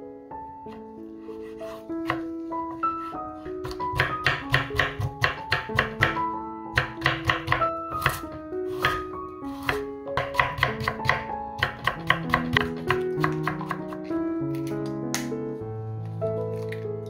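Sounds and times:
light piano background music: 0.0s - 17.0s
knife chopping on wooden board: 1.7s - 2.3s, 3.6s - 13.9s.

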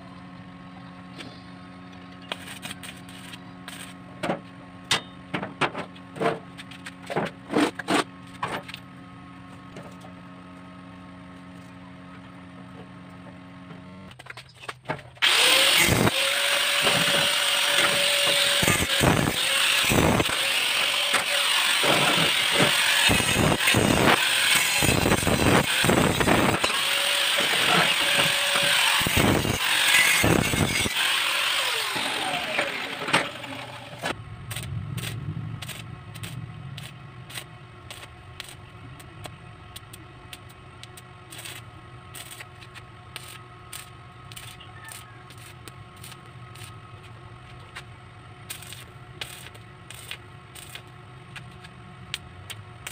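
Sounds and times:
angle grinder grinding steel: 15.2s - 38.6s
low steady hum: 32.5s - 52.9s.

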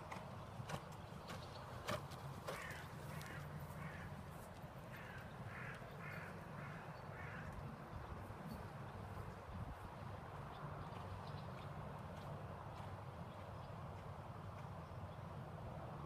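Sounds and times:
crow-like caws: 2.5s - 4.2s, 4.9s - 7.6s.

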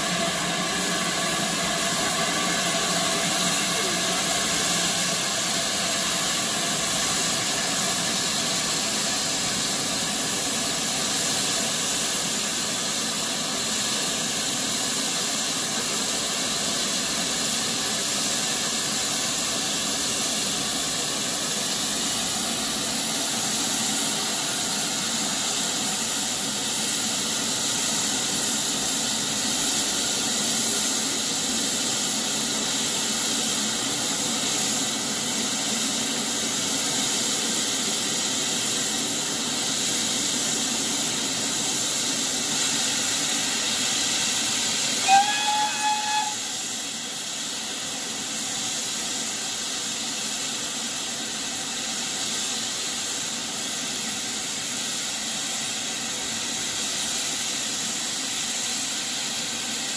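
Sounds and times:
steam hissing from locomotive: 0.0s - 59.9s.

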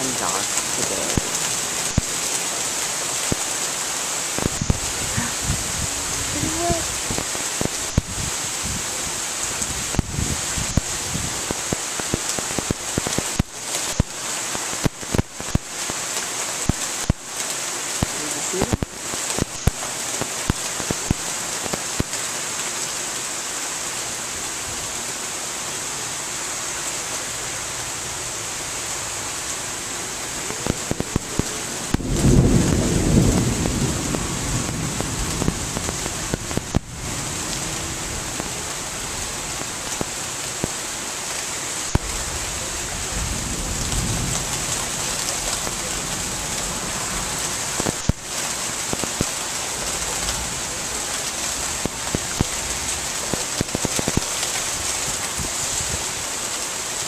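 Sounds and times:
rain hissing: 0.0s - 57.0s
thunder rumbling: 4.4s - 8.9s, 30.5s - 40.0s, 41.9s - 48.2s.

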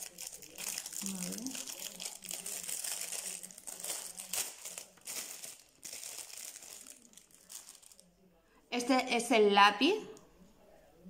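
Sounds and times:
plastic packaging crinkling: 0.0s - 8.1s.

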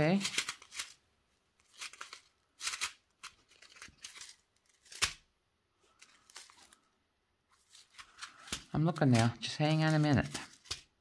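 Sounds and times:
plastic bag crinkling: 1.6s - 5.2s.

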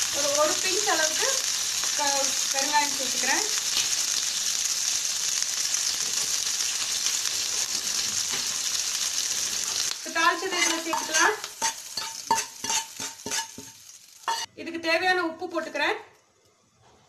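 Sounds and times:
spices sizzling in hot oil: 0.0s - 14.5s
steel spoon scraping and clinking: 10.5s - 14.5s.

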